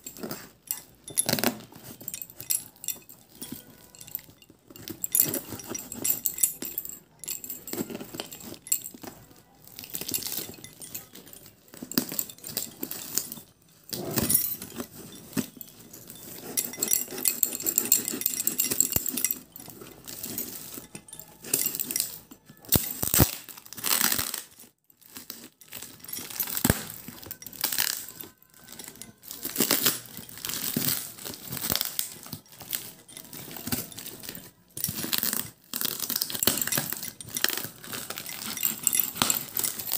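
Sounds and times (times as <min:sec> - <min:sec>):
packing tape and cardboard tearing: 0:22.6 - 0:25.8.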